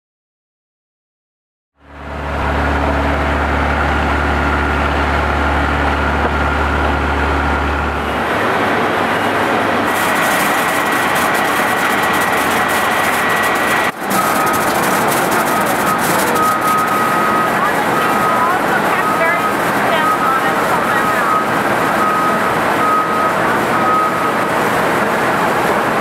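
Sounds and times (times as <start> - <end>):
harvester engine drone: 1.8 - 26.0
crackling mechanical rattle: 9.9 - 19.9.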